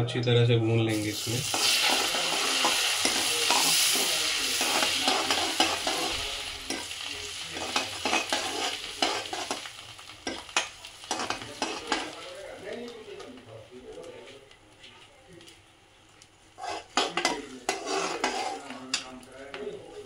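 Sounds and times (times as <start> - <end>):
seeds sizzling in hot oil: 0.9 - 14.2
metal ladle scraping a pan: 7.6 - 9.6, 16.6 - 19.0.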